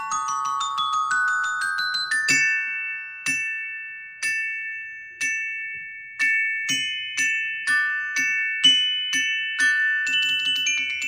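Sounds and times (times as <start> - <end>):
glockenspiel notes and chords: 0.0 - 11.0.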